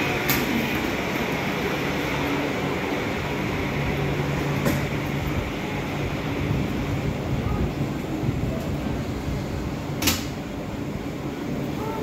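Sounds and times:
train traction hum and wheel noise: 0.0 - 12.0.

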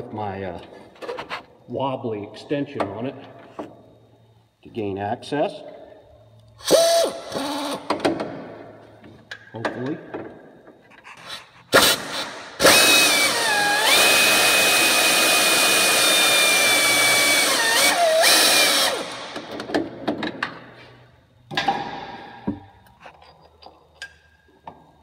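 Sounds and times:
pneumatic air ratchet whine: 6.6 - 8.1, 11.1 - 19.6
tools clicking and knocking: 22.4 - 24.9.

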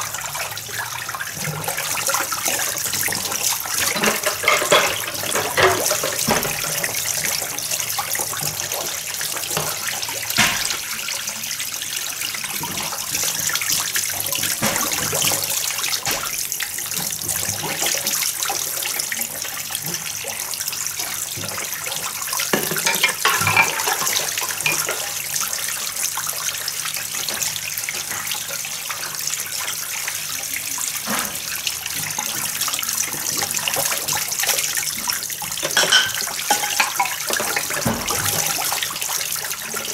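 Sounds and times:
water sloshing and splashing: 1.0 - 11.2, 12.6 - 18.7, 22.5 - 25.3, 31.0 - 39.9
dishes clinking together: 3.8 - 6.7, 10.4 - 10.8, 22.5 - 25.0, 35.6 - 38.2.

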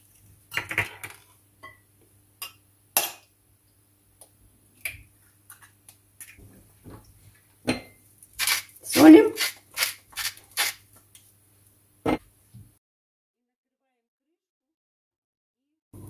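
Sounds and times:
knife cracking eggshell: 8.4 - 8.7, 9.4 - 10.8.

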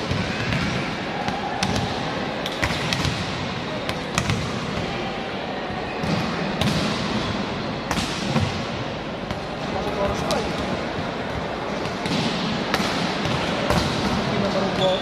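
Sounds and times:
volleyball slaps and thuds: 0.0 - 4.9, 6.0 - 8.7, 11.8 - 14.2
background hubbub: 0.0 - 15.0.

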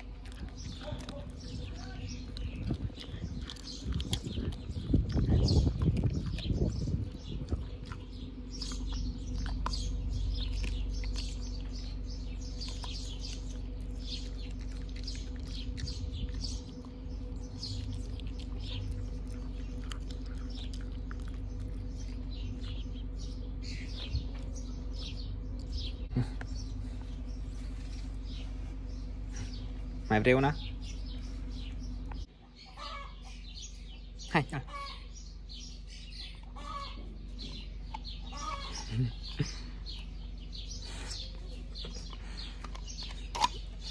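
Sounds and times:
dog chewing clicks: 0.0 - 22.8, 41.8 - 43.9
small birds chirping: 0.0 - 43.9
steady low hum: 0.0 - 43.9.

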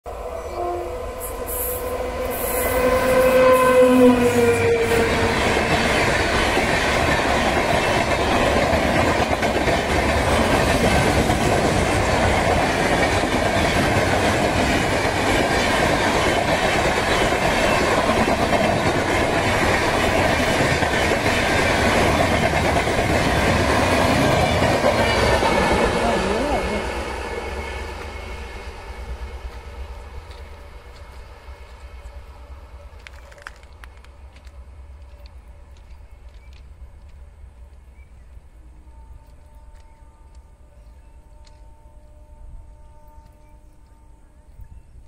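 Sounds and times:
train horn: 0.1 - 5.9, 38.7 - 44.9
train wheels rumbling on rails: 0.4 - 45.0.

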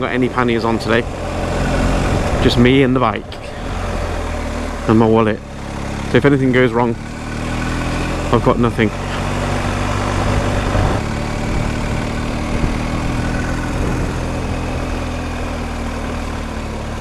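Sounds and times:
motorcycle engine running: 0.0 - 17.0
wind noise on microphone: 10.1 - 14.6.

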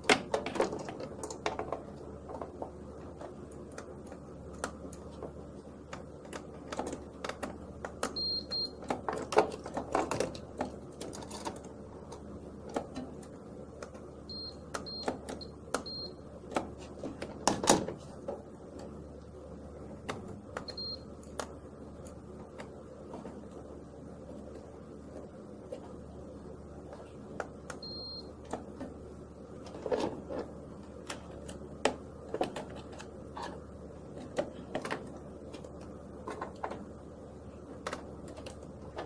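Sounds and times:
steady low hum: 0.0 - 39.0
multimeter short high beeps: 27.8 - 28.3.

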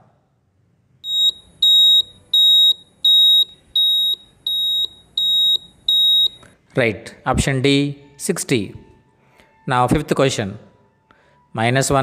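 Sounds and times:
high-pitched electronic beeps: 1.1 - 6.4.

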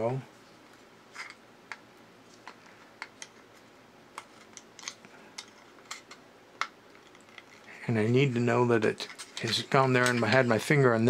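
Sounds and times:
plastic parts clicking: 4.2 - 7.7.

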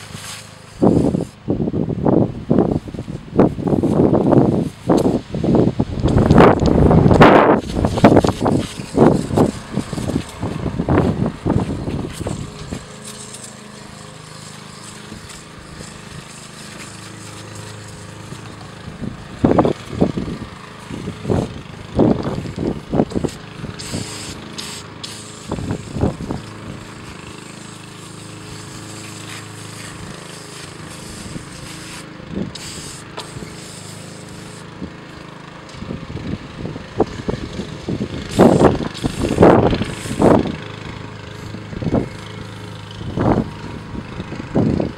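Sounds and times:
aerosol can spraying: 0.0 - 1.4, 6.0 - 34.8, 38.3 - 43.6
low motor drone: 0.0 - 44.9.

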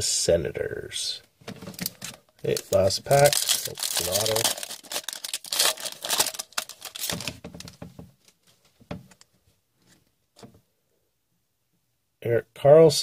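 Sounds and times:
foil wrapper crinkling: 1.7 - 7.8.

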